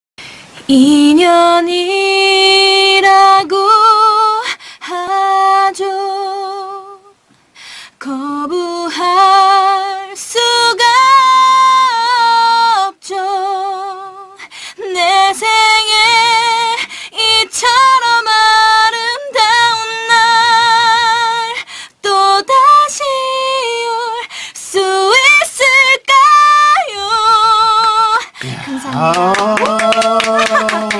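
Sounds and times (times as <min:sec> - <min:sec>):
woman singing unaccompanied: 0:00.6 - 0:07.2, 0:07.9 - 0:30.9
singer breathing: 0:07.5 - 0:08.0, 0:14.4 - 0:14.8, 0:16.8 - 0:17.2, 0:21.6 - 0:22.0, 0:24.3 - 0:24.6.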